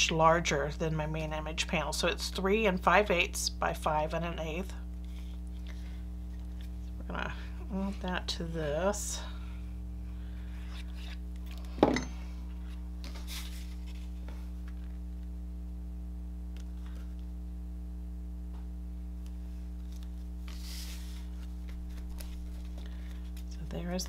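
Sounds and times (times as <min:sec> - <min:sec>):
low electrical hum: 0:00.0 - 0:24.0
cardstock rustling: 0:12.6 - 0:15.0, 0:19.8 - 0:23.5.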